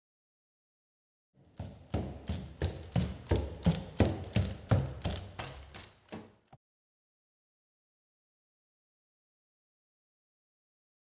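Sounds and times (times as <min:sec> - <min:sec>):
robot feet striking floor: 0:01.4 - 0:06.6.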